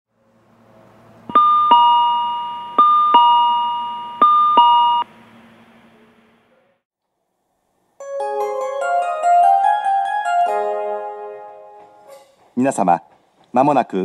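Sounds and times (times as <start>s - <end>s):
electronic two-tone chime: 1.3s - 5.1s.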